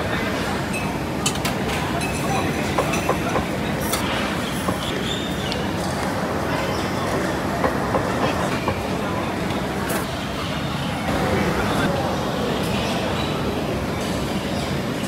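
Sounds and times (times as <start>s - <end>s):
chatter of many people: 0.0s - 15.0s
dishes and utensils clinking: 0.7s - 5.0s.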